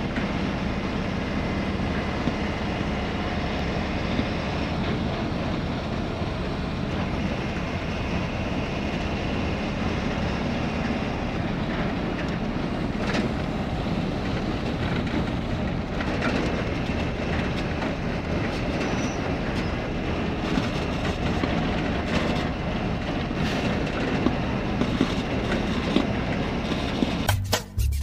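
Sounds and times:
vehicle road noise: 0:00.0 - 0:28.0
music: 0:27.3 - 0:28.0.

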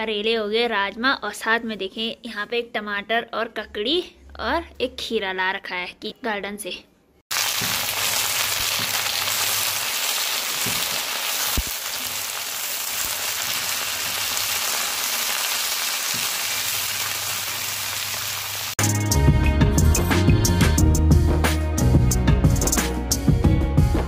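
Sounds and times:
vegetables sizzling in a pan: 0:07.3 - 0:18.8.

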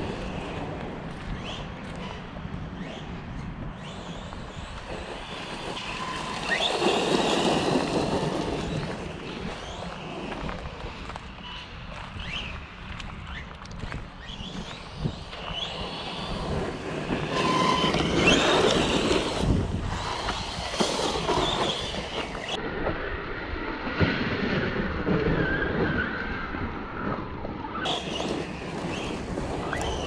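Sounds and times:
tyres on rough ground: 0:00.0 - 0:22.6, 0:27.7 - 0:30.0
electric motor whining: 0:14.2 - 0:22.6.

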